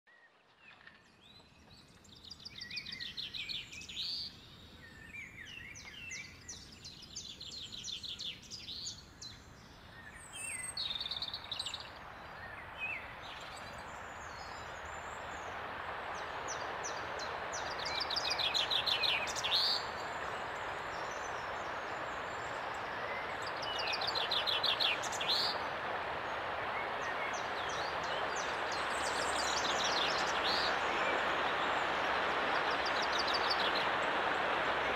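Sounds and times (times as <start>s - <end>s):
songbirds trilling: 8.3s - 34.9s
mountain stream rushing: 10.0s - 34.9s.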